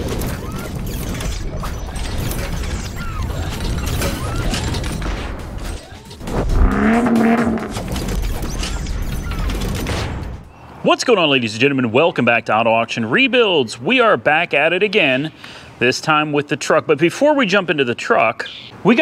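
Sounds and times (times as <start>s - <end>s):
pitched swell: 6.4s - 7.8s.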